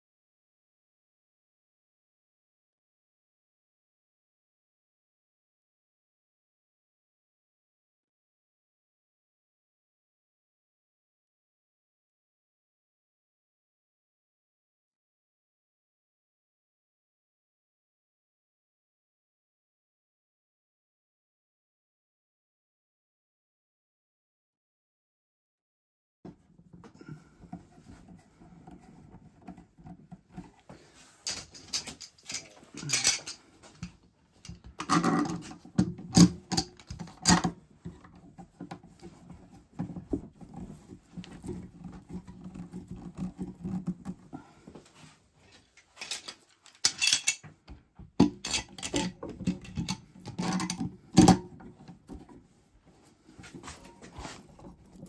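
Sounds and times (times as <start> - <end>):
handling noise: 26.7 - 55.0
metal clamps clicking and rattling: 31.2 - 37.6, 45.8 - 47.6, 48.2 - 51.5.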